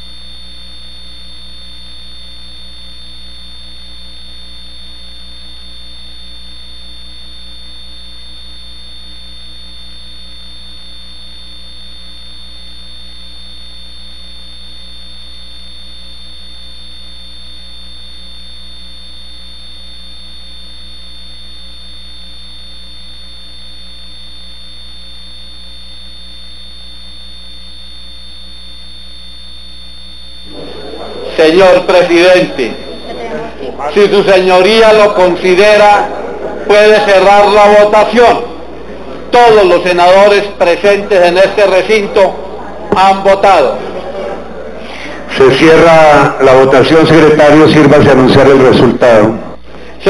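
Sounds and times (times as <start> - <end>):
electrical mains hum: 0.0 - 50.0
thin high whine: 0.0 - 50.0.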